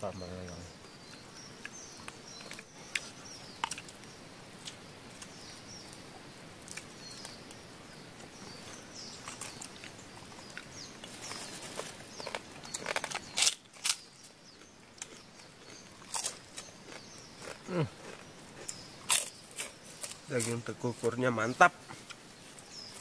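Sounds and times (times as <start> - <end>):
birds chirping: 0.0 - 23.0
person eating crunchy food: 10.5 - 20.5.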